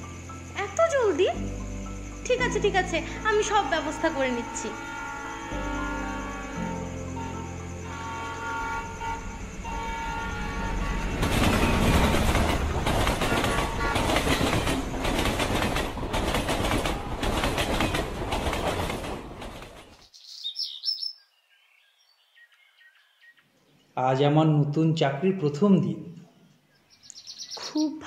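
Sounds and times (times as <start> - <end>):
train wheels clattering on rails: 9.5 - 20.0.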